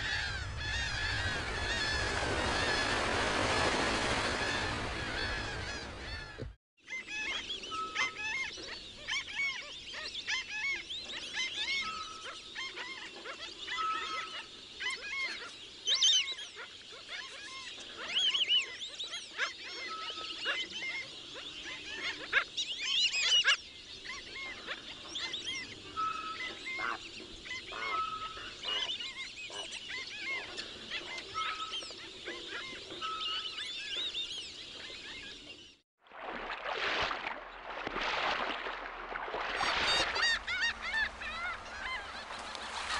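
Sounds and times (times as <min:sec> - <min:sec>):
harsh bird calls: 0:00.0 - 0:35.6, 0:39.4 - 0:42.9
birds chirping and whistling: 0:04.4 - 0:35.8.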